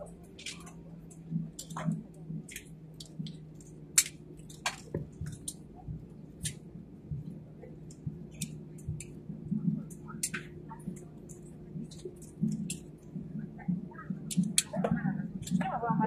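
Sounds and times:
clicks and rattles: 0:00.0 - 0:05.6
airliner cabin drone: 0:00.0 - 0:16.0.

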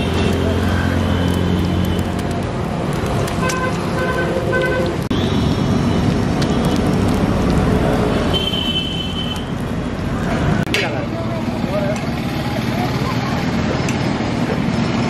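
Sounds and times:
oil sizzling on griddle: 0:00.0 - 0:10.6
street traffic noise: 0:00.0 - 0:15.0.

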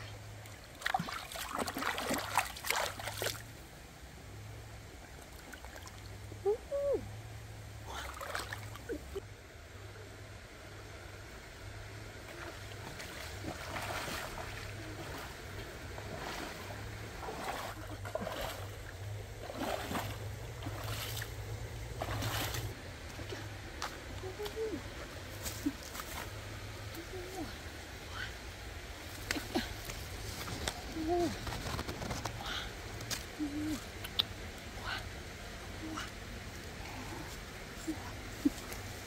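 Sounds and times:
stream running over stones: 0:00.0 - 0:06.4, 0:07.8 - 0:09.3, 0:11.9 - 0:39.0
splashing footsteps in water: 0:12.7 - 0:15.3, 0:16.0 - 0:18.8, 0:19.4 - 0:21.3, 0:21.9 - 0:24.0.

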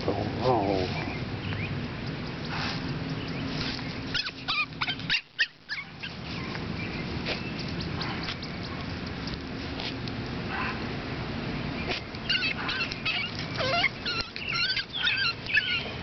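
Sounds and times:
puppies whimpering and yipping: 0:02.0 - 0:06.6, 0:11.8 - 0:16.0.

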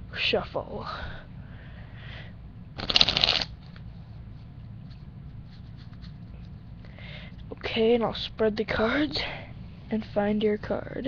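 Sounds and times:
playing cards riffle-shuffled: 0:02.8 - 0:03.8, 0:04.8 - 0:06.6.

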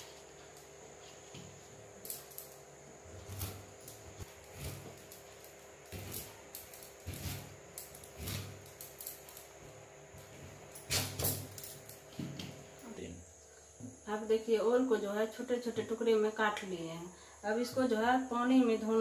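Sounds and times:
blade slicing yam: 0:03.2 - 0:09.0.

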